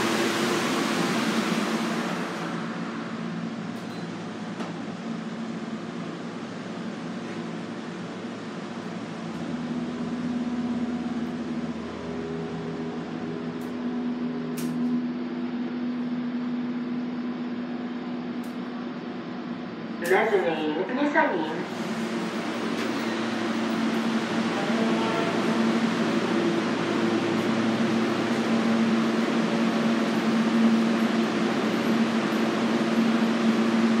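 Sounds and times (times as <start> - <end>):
elevator humming: 0.0 - 34.0.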